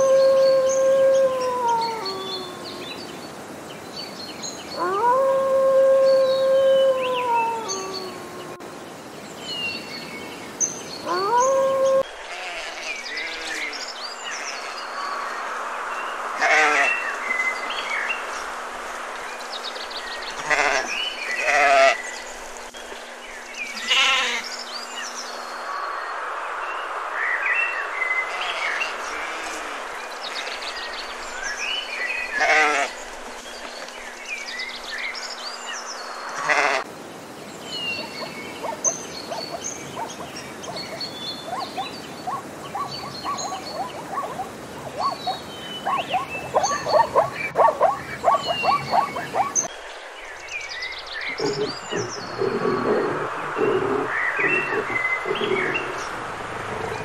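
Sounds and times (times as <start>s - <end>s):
birds chirping: 0.0s - 57.0s
sheep bleating: 12.3s - 13.7s, 23.8s - 24.4s, 32.4s - 32.9s.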